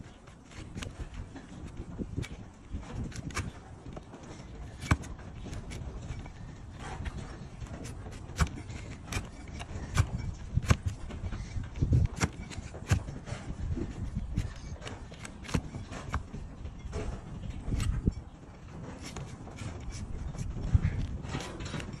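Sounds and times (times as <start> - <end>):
blade cutting hoof cracks: 0.5 - 4.0, 4.6 - 16.4
dull thumps: 0.5 - 18.1.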